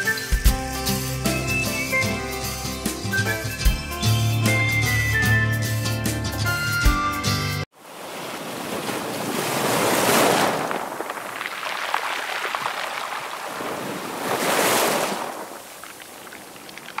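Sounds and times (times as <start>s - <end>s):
sea waves on rocky shore: 7.7s - 17.0s.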